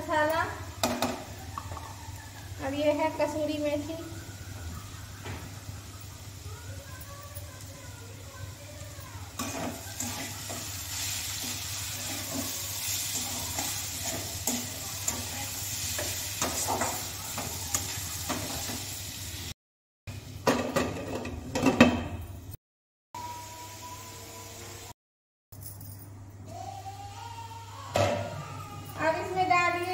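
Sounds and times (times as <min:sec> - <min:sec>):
potato sticks sizzling in oil: 0:00.0 - 0:19.6
spatula scraping a pan: 0:09.4 - 0:18.8.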